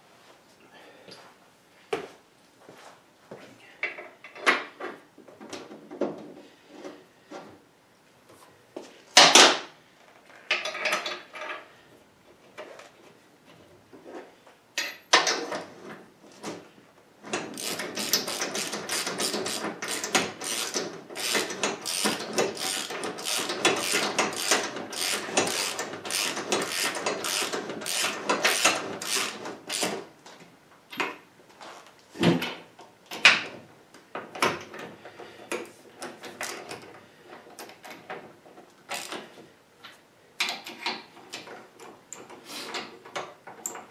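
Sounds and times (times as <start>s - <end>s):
ratchet wrench clicking: 17.5s - 29.9s, 38.9s - 39.2s.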